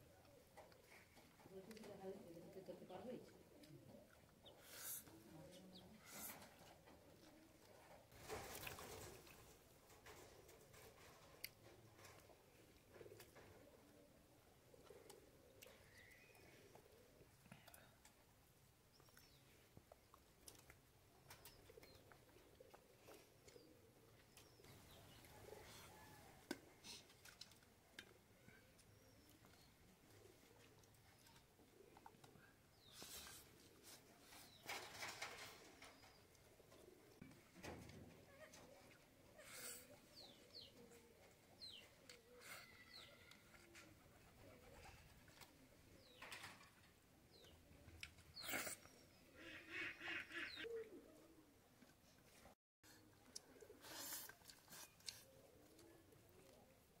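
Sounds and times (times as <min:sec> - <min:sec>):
doves cooing: 0:00.0 - 0:18.0, 0:21.2 - 0:27.4, 0:28.2 - 0:51.8, 0:54.8 - 0:57.0
small birds chirping: 0:00.3 - 0:07.0, 0:14.8 - 0:18.2, 0:18.8 - 0:26.2, 0:38.4 - 0:50.8
clicks and smacks of eating: 0:19.0 - 0:23.6, 0:26.5 - 0:29.6, 0:54.2 - 0:56.6
soft cooing: 0:38.1 - 0:45.3.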